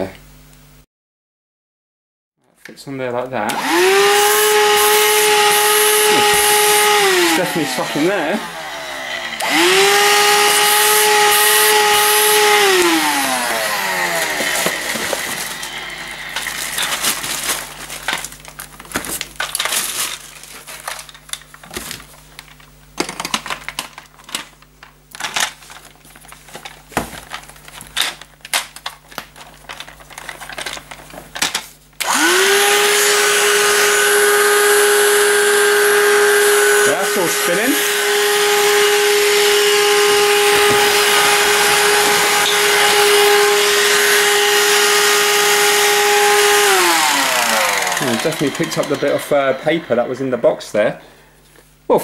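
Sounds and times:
vacuum motor whine: 3.5s - 20.0s, 32.0s - 51.1s.

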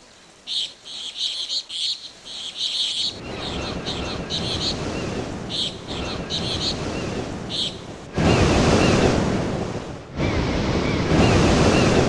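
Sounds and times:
ocean surf rushing: 2.9s - 12.0s.

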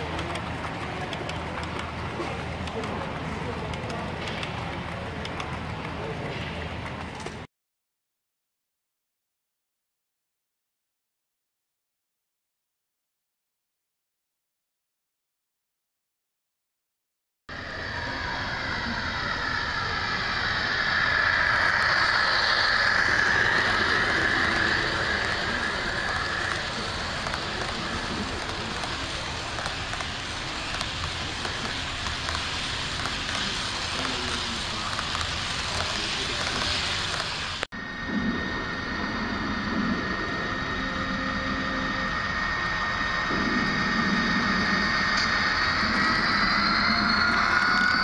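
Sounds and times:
low locomotive hum: 0.0s - 7.5s, 17.5s - 48.0s
model train wheels clattering: 0.0s - 7.5s, 20.4s - 37.6s
high sliding whine: 17.5s - 48.0s.

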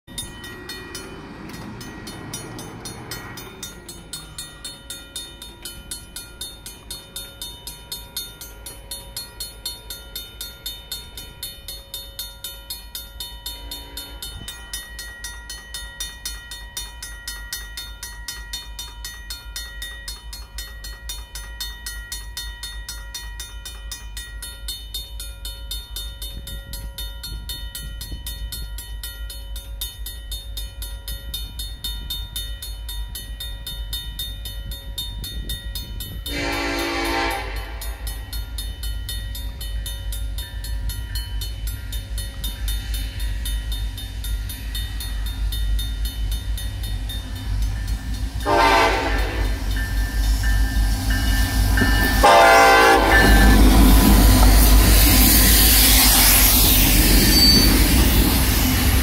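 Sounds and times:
crossing warning bells ringing: 0.1s - 59.0s.

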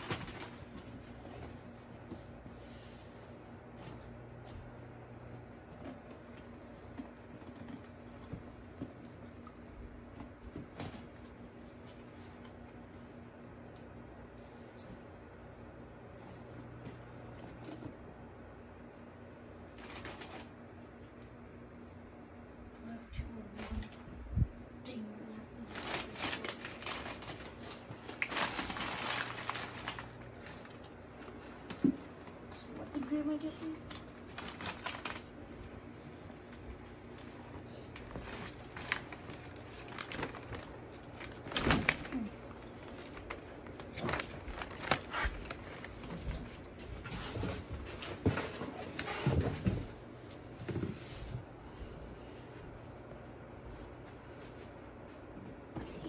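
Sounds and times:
paper rustling: 0.0s - 4.1s, 19.7s - 20.5s, 25.6s - 32.0s, 32.7s - 35.6s, 36.4s - 51.4s
low steady hum: 0.0s - 56.0s.

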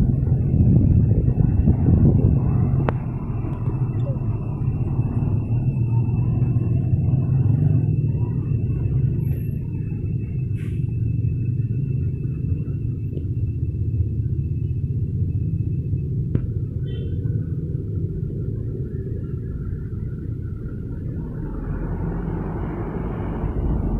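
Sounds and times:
motorcycles and cars driving past: 16.7s - 23.9s.

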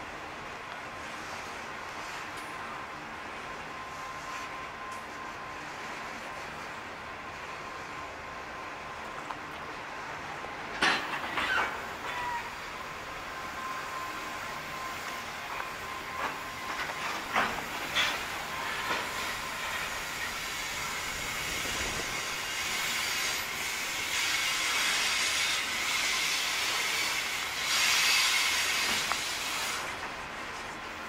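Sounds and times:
freight wagons rolling on rails: 0.0s - 31.0s
thin steady squeal: 3.6s - 6.7s
hiss: 11.4s - 30.7s.

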